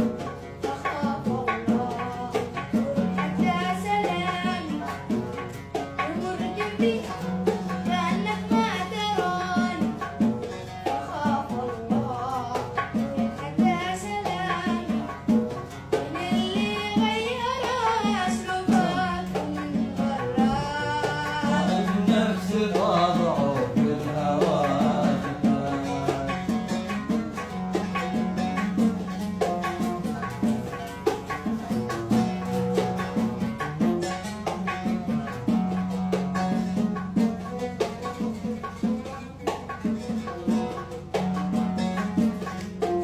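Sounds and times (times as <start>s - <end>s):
oud plucked: 0.0s - 43.0s
boy singing: 0.5s - 27.5s.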